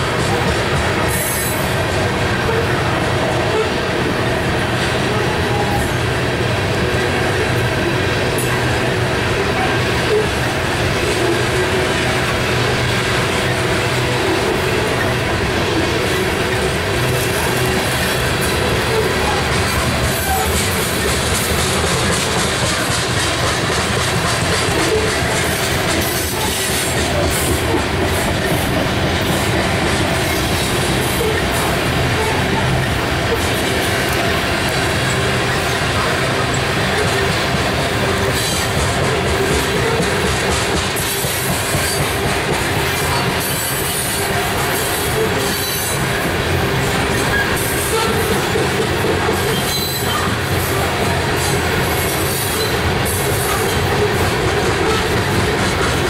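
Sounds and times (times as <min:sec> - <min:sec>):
freight train wheels on rails: 0:00.0 - 0:56.0
wheels squealing: 0:46.8 - 0:48.6, 0:49.2 - 0:56.0.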